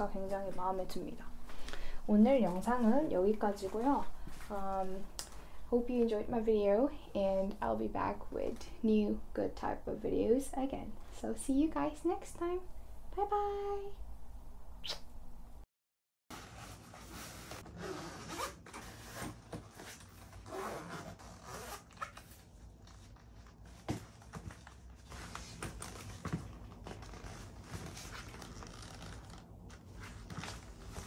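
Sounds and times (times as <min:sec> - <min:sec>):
rustling and scraping handling: 0:16.3 - 0:31.0.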